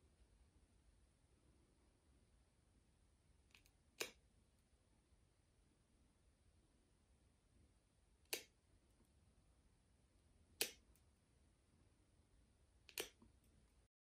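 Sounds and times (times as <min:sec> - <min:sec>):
nail clippers clicking: 0:10.6 - 0:10.8, 0:12.9 - 0:13.2.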